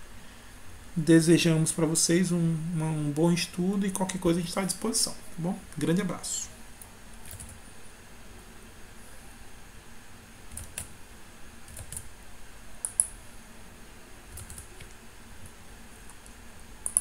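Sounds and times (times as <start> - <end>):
mouse and keyboard clicks: 12.8 - 13.1, 16.1 - 17.0.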